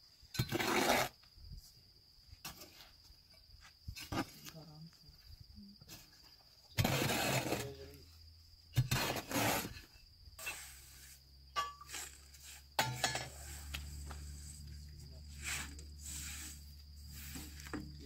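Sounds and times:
crickets chirping: 0.0s - 18.0s
shovel scraping through sand: 0.4s - 1.2s, 6.8s - 7.9s, 8.8s - 14.6s, 15.3s - 17.7s
broom sweeping sand off metal: 8.9s - 14.6s, 15.2s - 18.0s.

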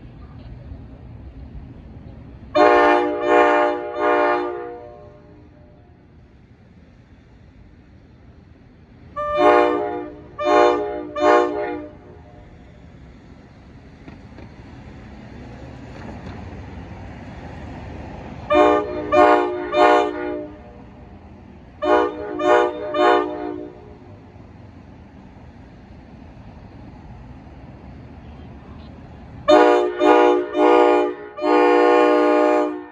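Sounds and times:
train rumble: 0.0s - 32.9s
train horn short blasts: 2.5s - 5.4s, 9.2s - 12.3s, 18.5s - 20.8s, 21.8s - 24.0s, 29.5s - 32.9s.

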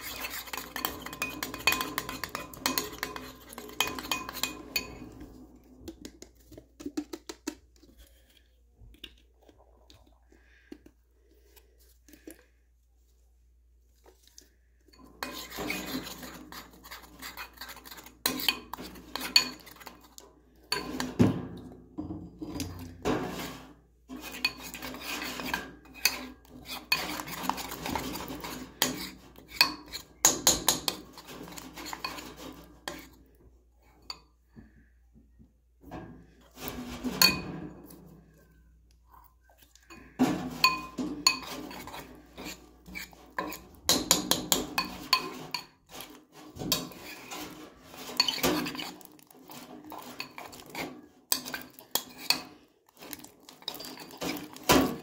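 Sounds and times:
metal spoon scraping a bowl: 0.0s - 5.8s, 14.3s - 21.7s, 22.3s - 34.4s, 36.3s - 55.0s.

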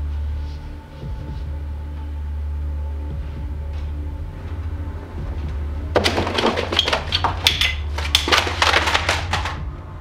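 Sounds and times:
steady low hum: 0.0s - 6.0s
items knocking and crashing: 5.9s - 9.7s.

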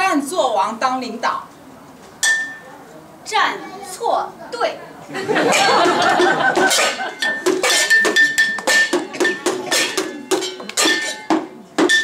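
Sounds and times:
pot lids clanging: 5.5s - 12.0s.

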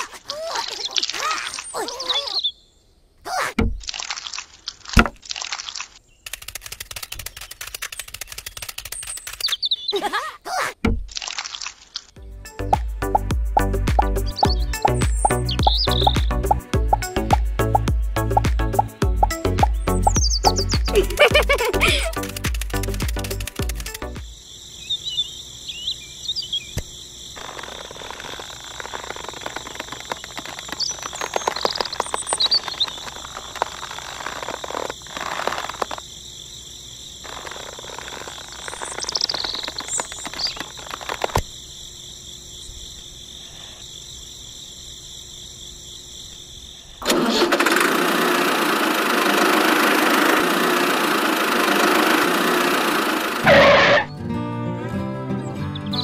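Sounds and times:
toy tractor engine running: 6.2s - 9.6s, 20.0s - 24.1s, 47.0s - 53.9s
sticks and twine rustling: 20.9s - 24.1s, 27.4s - 36.0s.

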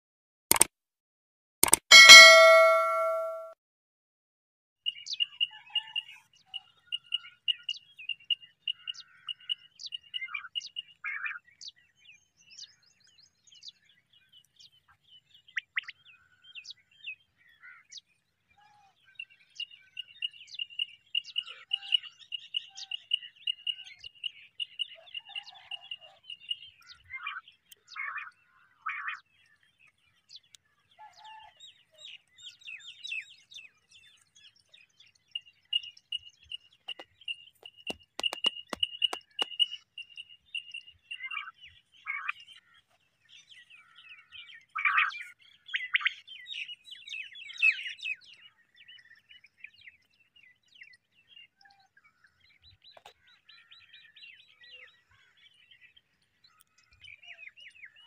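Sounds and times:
high-pitched trill: 1.9s - 3.5s
birds chirping: 29.3s - 51.4s.

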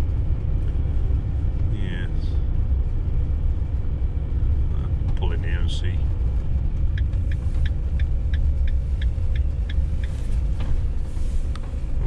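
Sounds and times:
engine and road rumble: 0.0s - 12.0s
turn indicator ticking: 6.8s - 10.4s.

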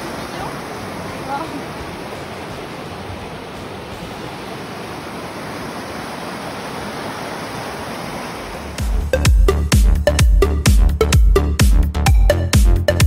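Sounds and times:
stream rushing over rocks: 0.0s - 9.0s.

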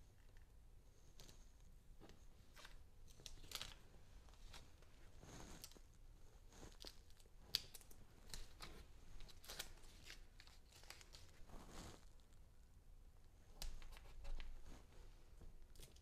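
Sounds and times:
paper and tape rustling: 2.0s - 5.8s, 6.7s - 12.3s, 13.6s - 14.9s.

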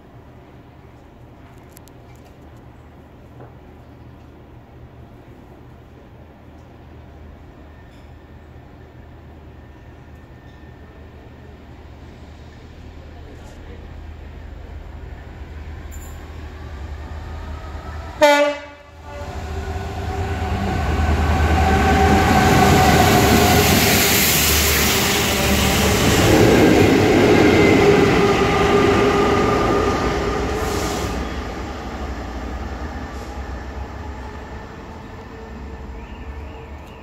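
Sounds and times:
train engine passing: 0.0s - 37.0s
locomotive horn blast: 18.1s - 20.6s.

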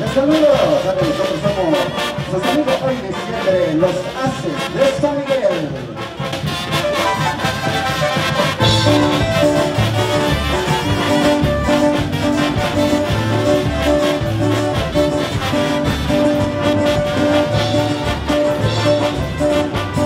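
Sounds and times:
brass band playing: 0.0s - 20.0s
bass drum: 6.1s - 20.0s.

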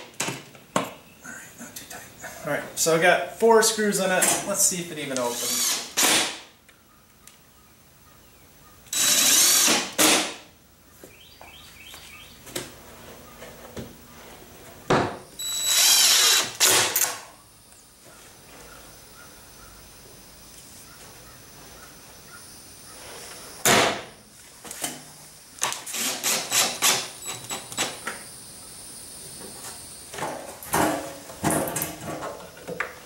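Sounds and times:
cordless drill driving screws: 5.3s - 6.3s, 8.9s - 10.3s, 15.4s - 17.2s, 25.6s - 27.9s.

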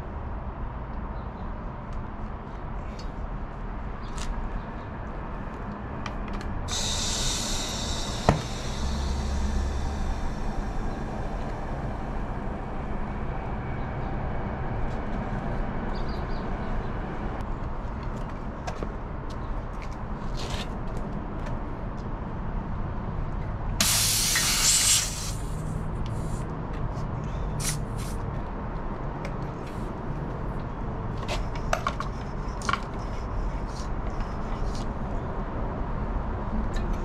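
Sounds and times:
compressed air hissing: 6.7s - 12.4s, 23.8s - 26.4s.

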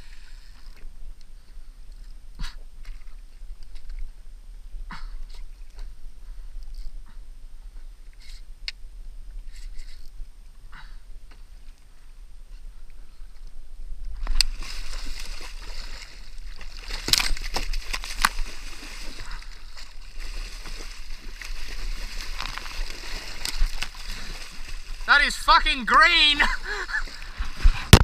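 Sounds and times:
water slapping against kayak hull: 14.2s - 25.4s
fish thrashing in water: 14.3s - 25.1s.

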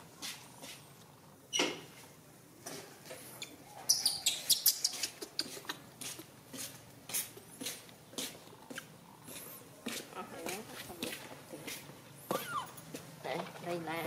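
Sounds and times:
monkey squeaking: 3.4s - 5.8s, 12.3s - 12.8s.

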